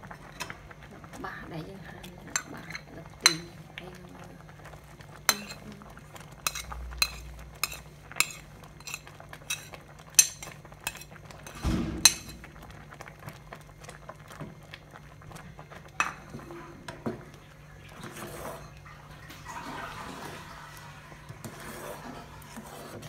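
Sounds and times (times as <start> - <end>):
ladle scraping pot: 2.3 - 3.6, 5.2 - 12.6, 15.9 - 23.0.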